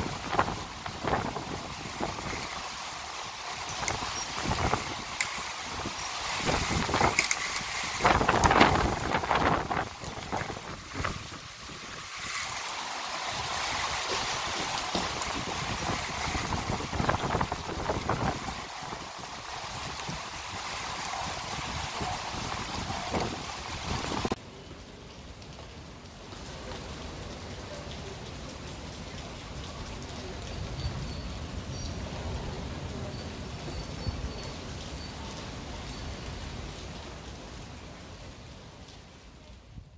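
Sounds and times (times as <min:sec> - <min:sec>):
wind buffeting microphone: 0:00.0 - 0:02.9, 0:03.5 - 0:12.6, 0:13.3 - 0:24.4
heavy rain pouring: 0:00.0 - 0:39.9.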